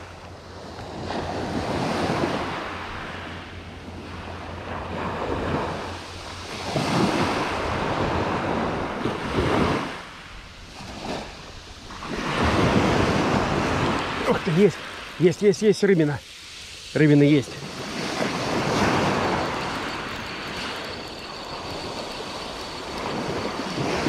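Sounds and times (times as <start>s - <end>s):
sea waves washing onto rocks: 10.7s - 24.0s.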